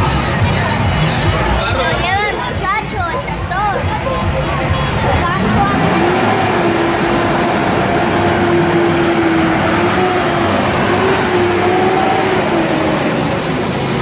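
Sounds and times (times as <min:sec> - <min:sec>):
truck engine driving past: 0:04.5 - 0:14.0.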